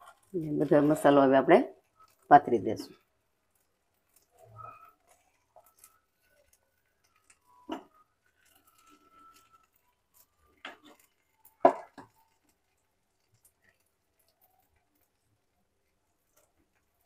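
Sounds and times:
spoon knocking in a pan: 0:07.7 - 0:08.0, 0:10.6 - 0:12.2.

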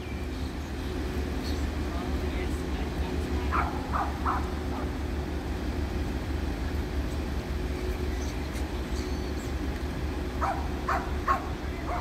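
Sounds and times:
diesel train engine rumbling: 0:00.0 - 0:12.0
faint dog bark: 0:03.5 - 0:04.9, 0:10.4 - 0:12.0.

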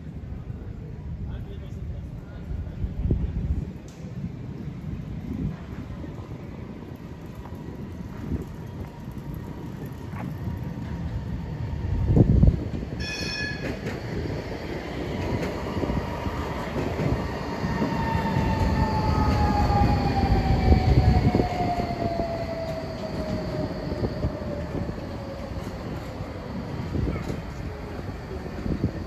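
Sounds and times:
train rumbling on tracks: 0:00.0 - 0:29.0
short high-pitched signal: 0:13.0 - 0:13.7.

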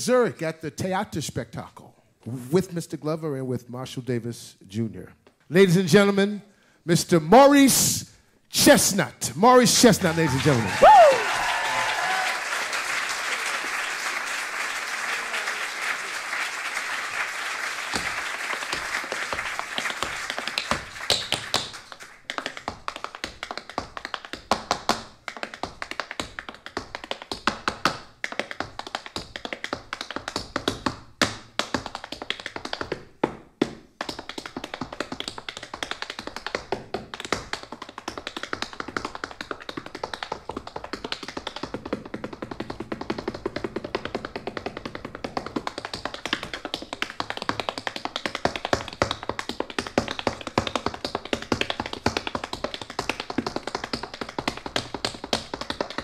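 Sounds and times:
tap shoes on wooden stage: 0:08.6 - 0:56.0
audience applause: 0:09.8 - 0:22.2.

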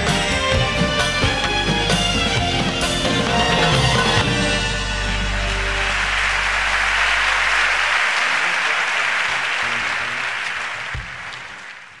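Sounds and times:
audience applauding: 0:01.7 - 0:12.0.

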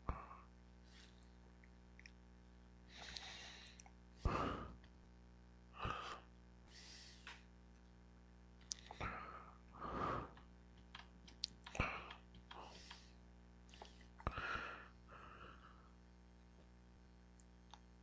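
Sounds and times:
faint electrical hum: 0:00.0 - 0:18.0
person breathing and sighing: 0:02.9 - 0:04.9, 0:05.8 - 0:07.4, 0:08.7 - 0:10.5, 0:11.7 - 0:16.0
sharp clicks: 0:10.3 - 0:13.1.

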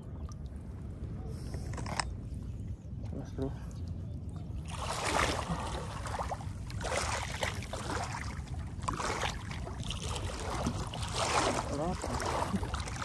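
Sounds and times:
water splashing: 0:04.6 - 0:13.0.

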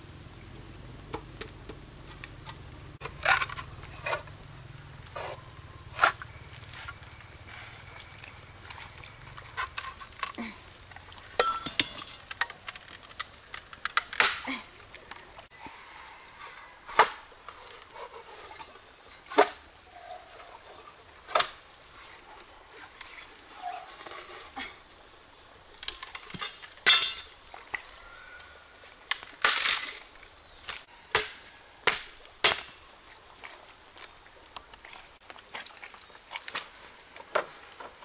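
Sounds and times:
bamboo splitting with crackling snaps: 0:01.0 - 0:04.3, 0:12.0 - 0:15.3, 0:21.3 - 0:21.6, 0:25.8 - 0:27.3, 0:29.0 - 0:33.3.

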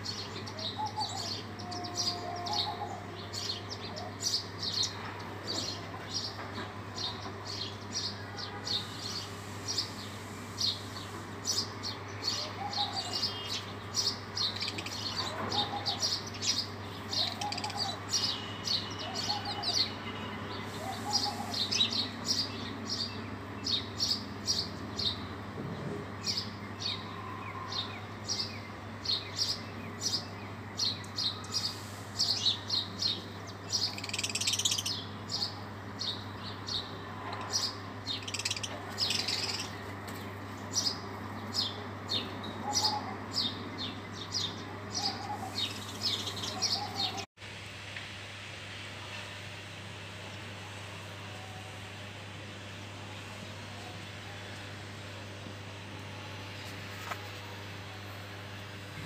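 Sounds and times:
sparrows chirping: 0:00.0 - 0:25.4, 0:26.2 - 0:47.3.

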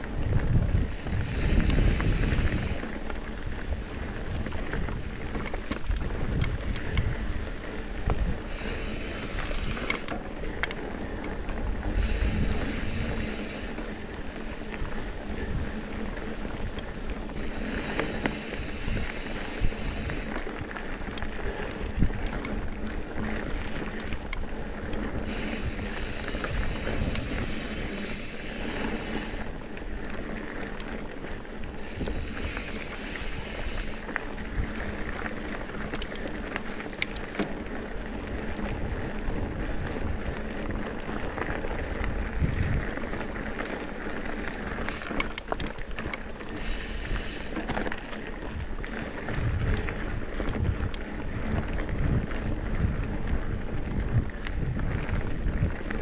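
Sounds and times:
bike rattling: 0:00.0 - 0:56.0
bike tyres rolling on dirt: 0:00.0 - 0:56.0
wind hiss on microphone: 0:00.2 - 0:05.3, 0:05.9 - 0:10.1, 0:11.7 - 0:15.9, 0:16.5 - 0:20.4, 0:25.1 - 0:29.6, 0:31.8 - 0:35.1, 0:46.1 - 0:47.8.

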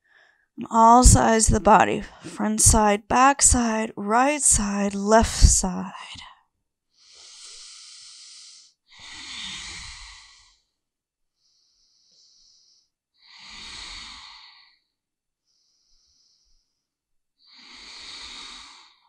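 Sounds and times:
woman breathing slowly: 0:11.4 - 0:12.9.

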